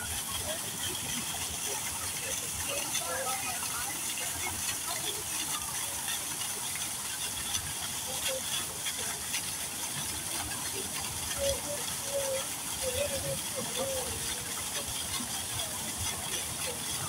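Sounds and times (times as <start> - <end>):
faint distant voices: 0.0 - 17.0
running water hissing: 0.0 - 17.0.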